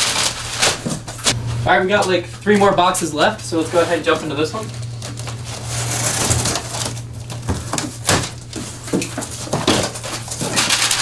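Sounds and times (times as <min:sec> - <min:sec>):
packing tape ripping: 0:00.0 - 0:01.4, 0:03.7 - 0:11.0
cardboard flaps scraping: 0:00.0 - 0:01.5, 0:02.5 - 0:11.0
steady low hum: 0:00.0 - 0:11.0.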